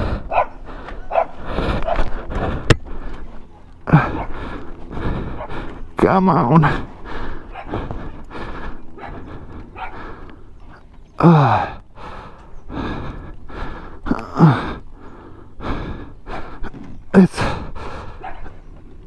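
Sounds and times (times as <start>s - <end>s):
man breathing hard: 0.0s - 19.0s
man groaning with effort: 3.8s - 4.4s, 5.9s - 8.2s, 11.2s - 11.9s, 14.0s - 14.9s, 17.1s - 17.8s.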